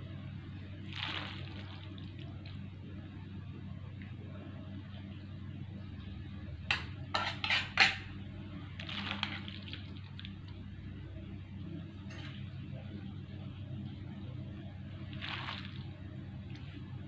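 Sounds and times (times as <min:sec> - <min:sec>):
low hum: 0:00.0 - 0:17.0
metal spatula clanking on wok: 0:06.7 - 0:08.1.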